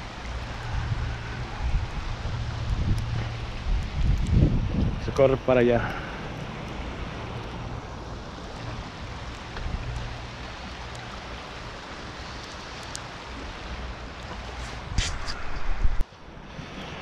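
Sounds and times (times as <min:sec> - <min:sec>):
low rumble: 0:00.0 - 0:10.6
river rushing over riffles: 0:00.0 - 0:17.0.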